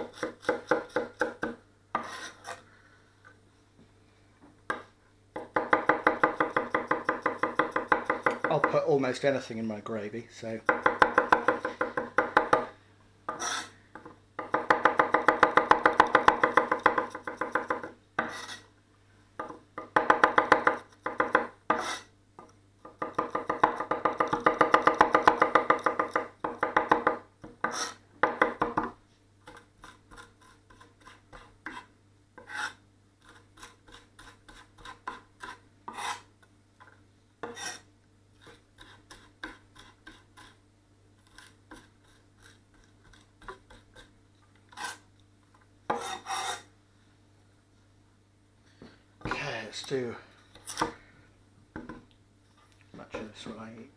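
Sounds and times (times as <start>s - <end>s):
blade scraping board: 2.0s - 2.6s, 13.3s - 13.8s, 18.2s - 18.7s, 21.7s - 22.1s, 27.6s - 28.0s, 32.4s - 36.3s, 37.4s - 37.8s, 44.7s - 45.0s, 45.9s - 46.7s.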